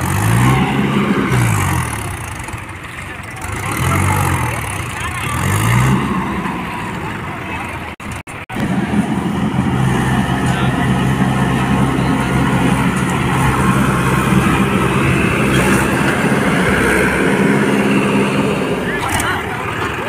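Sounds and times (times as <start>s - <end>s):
tractor diesel engine under load: 0.0s - 20.0s.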